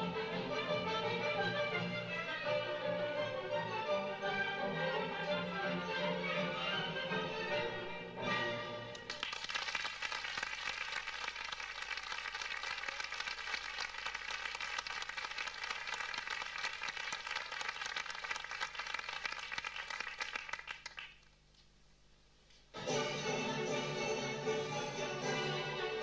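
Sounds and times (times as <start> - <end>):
orchestral music: 0.0 - 9.1, 22.8 - 26.0
audience applause: 9.0 - 21.3.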